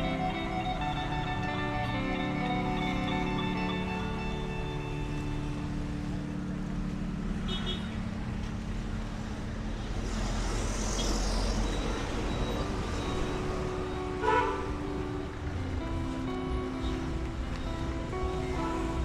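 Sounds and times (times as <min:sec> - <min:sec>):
vehicles passing: 0:00.0 - 0:19.0.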